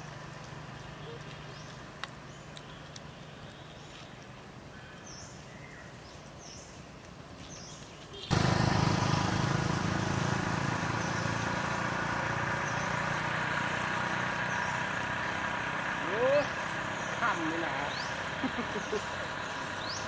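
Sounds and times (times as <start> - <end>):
motor engine running: 8.3 - 20.0.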